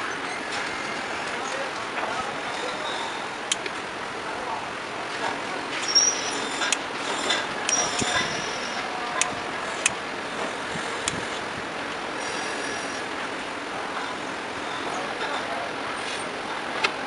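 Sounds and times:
faint high squeak: 0:05.8 - 0:08.9.

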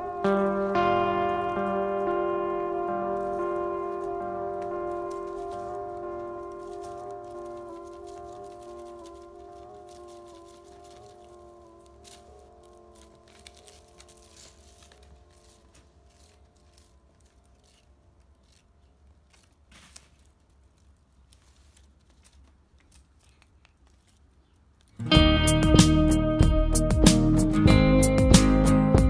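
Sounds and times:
loud guitar music: 0:00.0 - 0:14.8, 0:25.0 - 0:29.0
background music: 0:00.0 - 0:16.9, 0:25.0 - 0:29.0
kittens scrabbling on turf: 0:03.0 - 0:25.0.

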